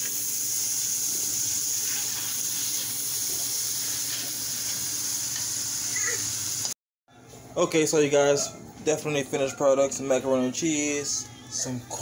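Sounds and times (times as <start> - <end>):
butter sizzling in a frying pan: 0.0 - 6.8.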